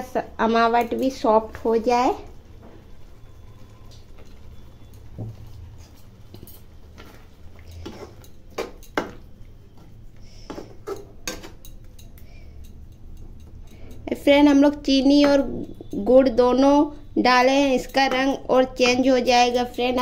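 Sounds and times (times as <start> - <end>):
spatula scraping and knocking pan: 2.7 - 12.0.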